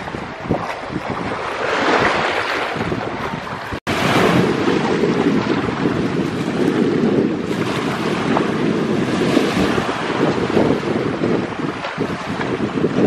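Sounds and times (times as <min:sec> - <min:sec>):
breaking surf: 0:00.0 - 0:13.0
wind buffeting microphone: 0:00.0 - 0:13.0.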